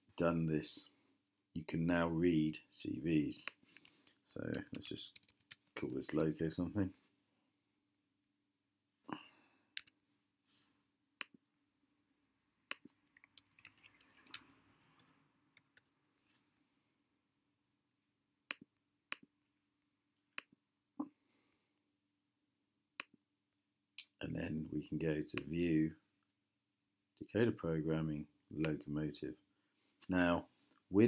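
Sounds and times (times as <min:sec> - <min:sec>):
mouse buttons clicking: 0:09.8 - 0:10.0.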